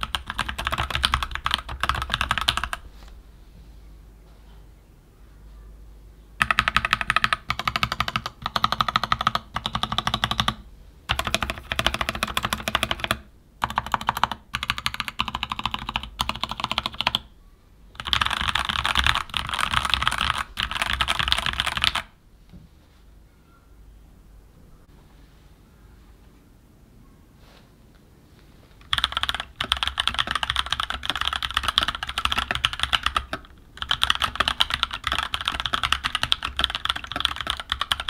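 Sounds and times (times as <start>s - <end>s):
mechanical keyboard typing: 0.0s - 2.8s, 6.4s - 17.3s, 18.0s - 22.1s, 28.8s - 38.0s.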